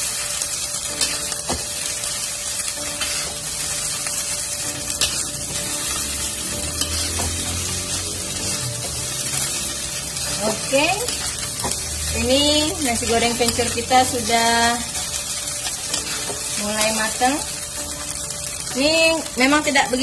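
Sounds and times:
rice sizzling in a wok: 0:00.0 - 0:20.0
spatula scraping a pan: 0:02.9 - 0:12.3.

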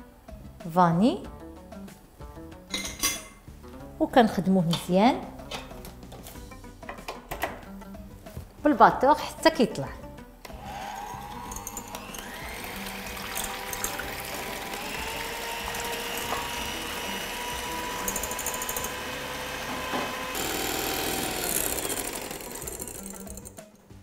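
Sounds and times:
electric hand mixer whine: 0:10.5 - 0:23.6.

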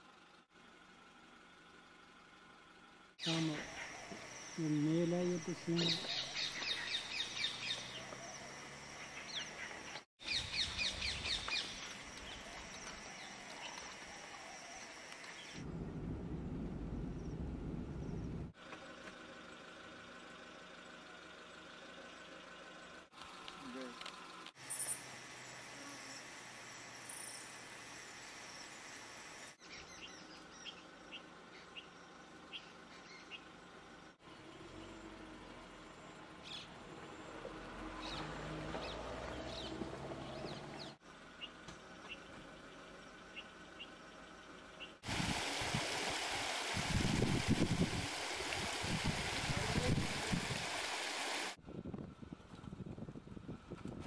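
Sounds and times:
faint steady outdoor hiss: 0:00.0 - 0:38.6, 0:41.0 - 0:51.6
insects droning: 0:00.2 - 0:51.6
birds calling: 0:03.2 - 0:15.6, 0:38.0 - 0:45.0.

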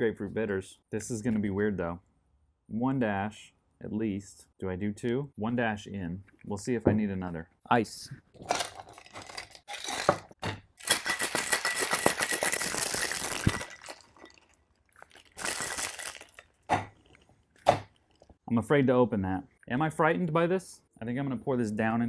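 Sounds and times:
ice clinking into metal tin: 0:10.8 - 0:14.4
ice rattling in cocktail shaker: 0:10.8 - 0:16.6.

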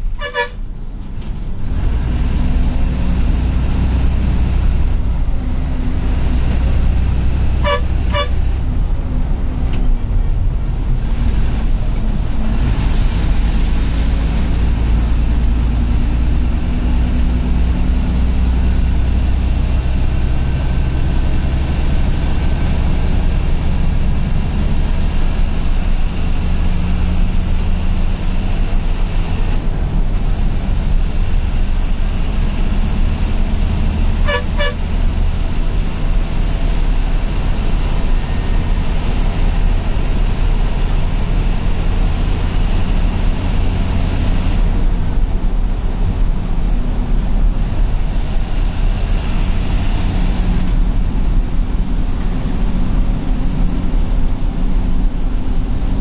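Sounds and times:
bus horn toots: 0:00.0 - 0:00.7, 0:07.4 - 0:08.6, 0:34.1 - 0:35.1
diesel bus engine running: 0:00.0 - 0:56.0.

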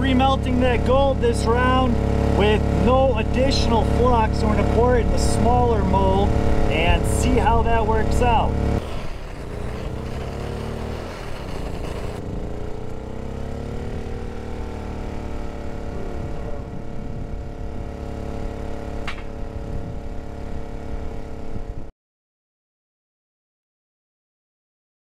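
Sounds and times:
steady hum: 0:00.0 - 0:12.9, 0:13.7 - 0:21.9
propane torch hissing: 0:08.8 - 0:12.2
wind buffeting microphone: 0:16.0 - 0:18.0, 0:19.2 - 0:20.2
sharp click: 0:19.0 - 0:19.3.

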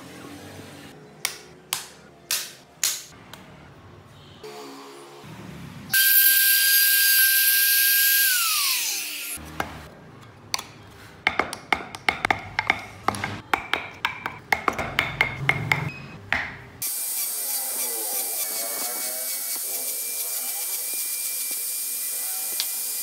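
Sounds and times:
small power tool whirring: 0:05.9 - 0:09.4, 0:16.8 - 0:23.0
trim router whining: 0:06.0 - 0:09.4.

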